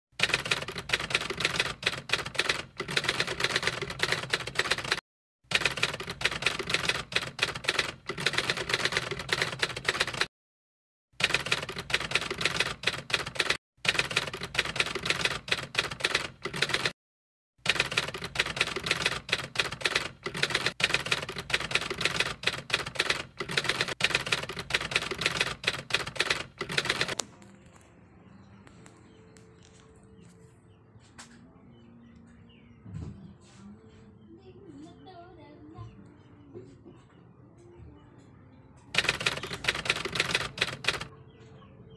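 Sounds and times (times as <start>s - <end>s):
typewriter key clacks: 39.0s - 41.1s.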